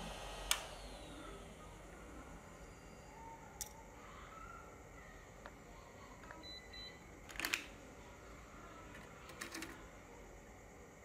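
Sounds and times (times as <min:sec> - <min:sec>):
faint electronic beeps: 0:00.9 - 0:07.2.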